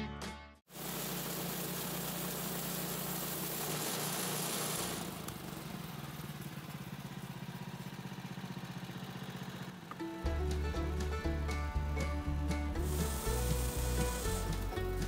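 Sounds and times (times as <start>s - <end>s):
hiss of blade cutting log: 0.7s - 5.4s, 12.8s - 15.0s
sawmill engine running: 0.7s - 15.0s.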